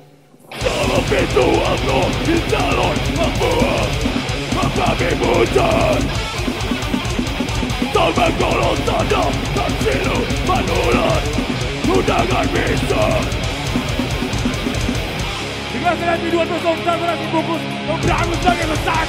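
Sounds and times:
death metal band playing live: 0.5s - 19.0s
person singing into microphone: 0.6s - 6.2s, 8.0s - 13.4s
rapid drumming: 0.6s - 15.6s, 18.0s - 19.0s.

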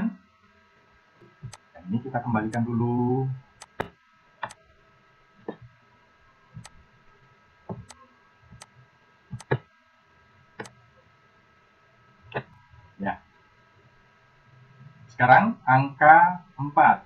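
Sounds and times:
mouse button clicking: 3.6s - 4.6s, 6.6s - 6.8s, 7.7s - 8.0s, 9.4s - 9.6s.

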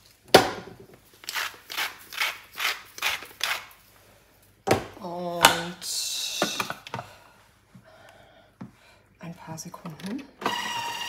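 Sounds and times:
spice mill grinding: 1.2s - 3.7s.

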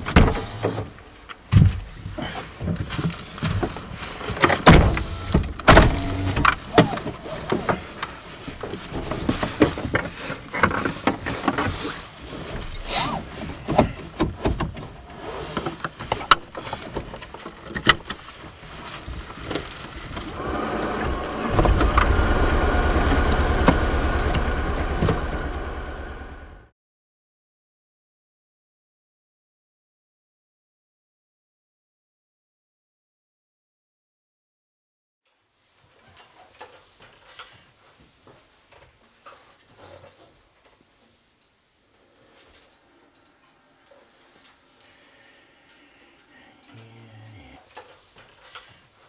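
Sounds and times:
car engine running: 5.0s - 6.6s, 20.3s - 26.7s
clothing rustle: 6.0s - 14.2s, 14.8s - 22.8s.

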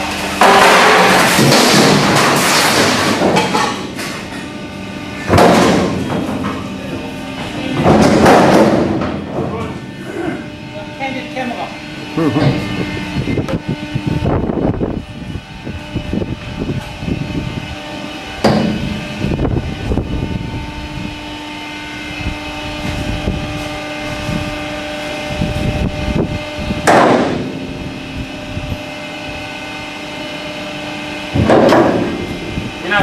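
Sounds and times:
machinery humming: 0.0s - 33.0s
loud metal bangs: 0.4s - 14.3s, 26.7s - 28.0s, 31.2s - 32.8s.

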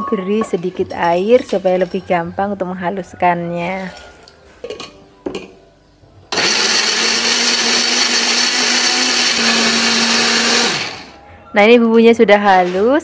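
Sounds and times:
blender running at full speed: 6.3s - 11.1s.

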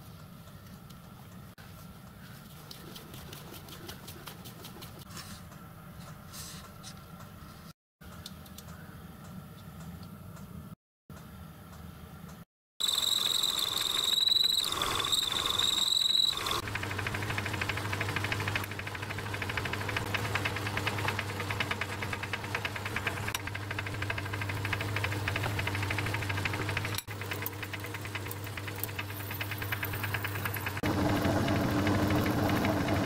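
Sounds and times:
lathe high whine: 12.8s - 19.1s
fast ticking from lathe drive: 12.8s - 33.0s
lathe low hum: 12.8s - 33.0s.

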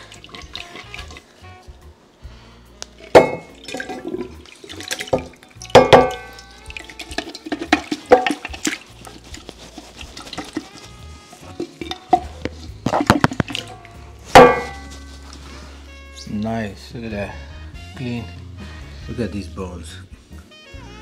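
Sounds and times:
stew gushing and splashing: 0.0s - 1.3s, 3.0s - 15.6s
ringing clunks against pan: 3.2s - 3.5s, 5.2s - 6.4s, 14.4s - 14.9s.

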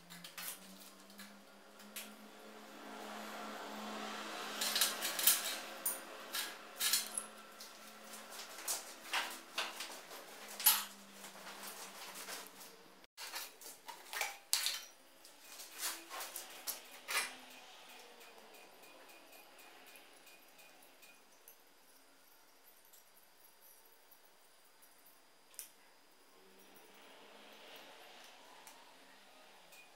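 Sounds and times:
sheet steel clinking and scraping: 4.4s - 21.2s.

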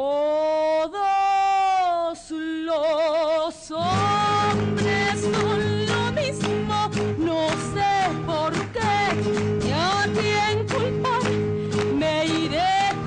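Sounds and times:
woman singing solo: 0.0s - 13.0s.

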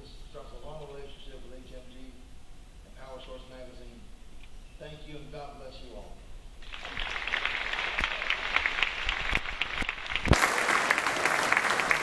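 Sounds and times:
audience applauding: 6.6s - 12.0s.

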